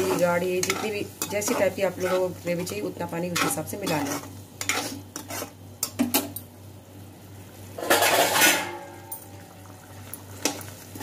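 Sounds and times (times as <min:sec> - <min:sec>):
metal spoon scraping metal pot: 0:00.0 - 0:05.6.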